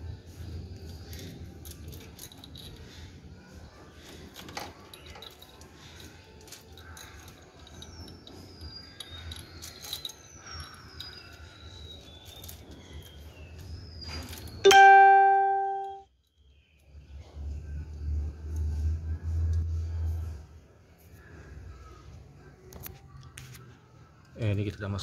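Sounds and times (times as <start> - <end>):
metallic clinks of tools: 0.8 - 3.3, 4.0 - 13.4
birds whistling: 7.0 - 14.6.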